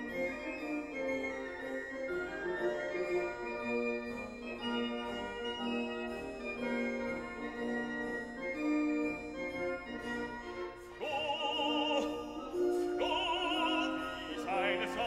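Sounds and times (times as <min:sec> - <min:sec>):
person singing with vibrato: 0:11.0 - 0:15.0.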